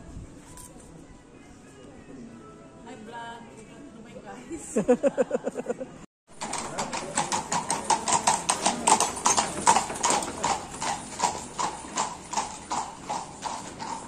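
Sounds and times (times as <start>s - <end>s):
hooves clip-clopping on brick: 6.4s - 14.0s.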